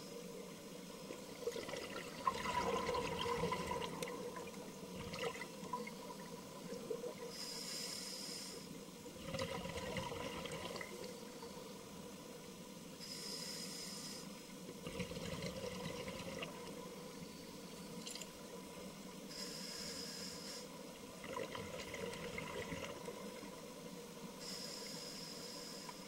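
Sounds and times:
regulator inhalation hiss: 7.3 - 8.8, 13.0 - 14.4, 19.3 - 20.8, 24.4 - 26.0.

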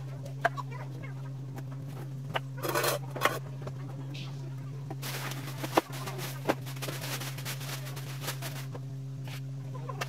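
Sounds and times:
steady low hum: 0.0 - 10.0
plastic bags rustling: 5.0 - 8.8.

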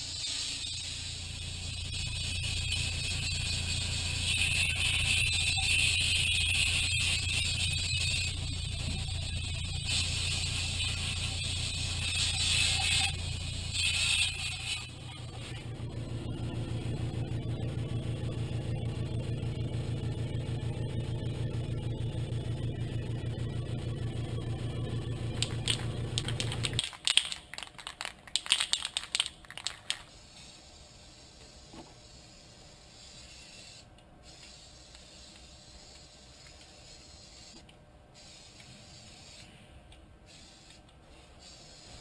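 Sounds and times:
aerosol spray can hissing: 0.0 - 14.9, 32.0 - 37.6, 38.2 - 39.6, 40.3 - 42.0
steady low hum: 0.0 - 42.0
spray can rattling: 13.7 - 14.8, 25.4 - 30.2.

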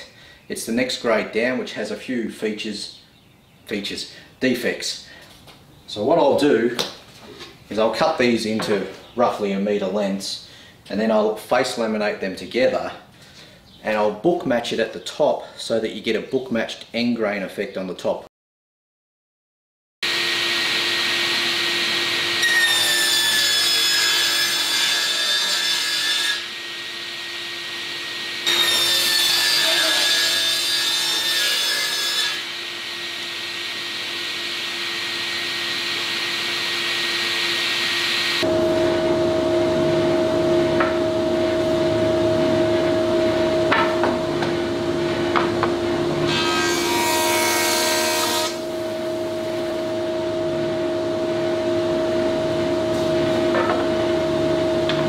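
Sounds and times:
table saw cutting hardwood: 20.0 - 55.0.

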